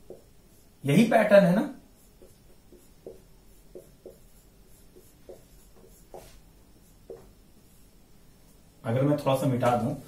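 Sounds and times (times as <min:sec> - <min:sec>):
marker writing on whiteboard: 0:00.0 - 0:01.1, 0:01.8 - 0:08.5.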